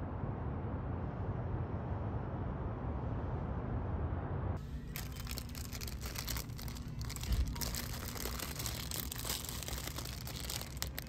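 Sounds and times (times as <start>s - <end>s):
low steady rumble: 0.0s - 11.0s
crinkling and crackling: 4.9s - 11.0s.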